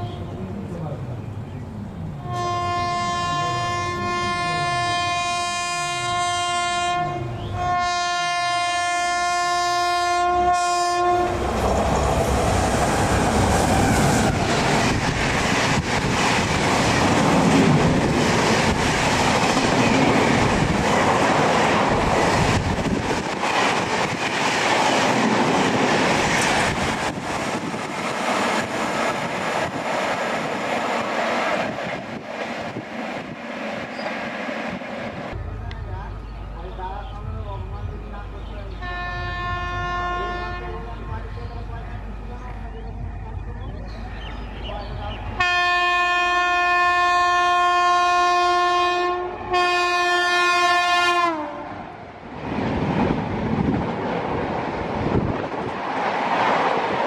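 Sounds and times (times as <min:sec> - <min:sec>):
train rushing past: 0:00.0 - 0:57.0
locomotive horn blasts: 0:02.2 - 0:11.4, 0:38.8 - 0:40.9, 0:45.4 - 0:51.7.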